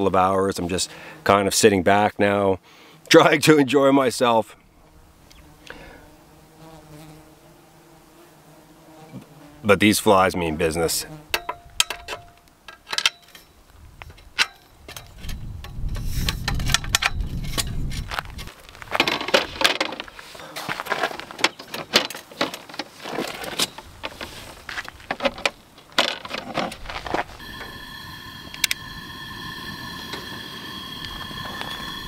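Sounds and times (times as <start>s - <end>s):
metal clicks and clanks: 11.4s - 17.8s, 21.4s - 24.3s, 25.1s - 27.0s.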